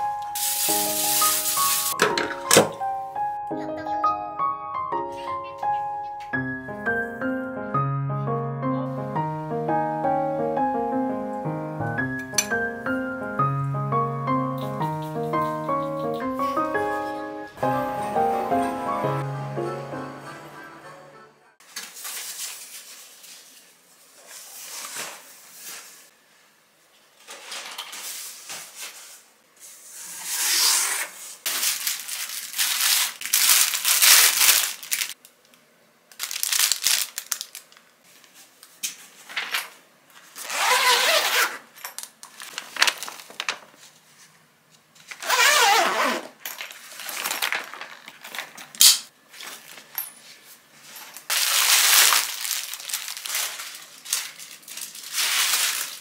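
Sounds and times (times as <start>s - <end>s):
plastic packaging crinkling: 0.2s - 2.0s, 31.5s - 35.3s, 36.1s - 38.3s, 40.3s - 44.0s, 45.1s - 48.7s, 51.0s - 56.0s.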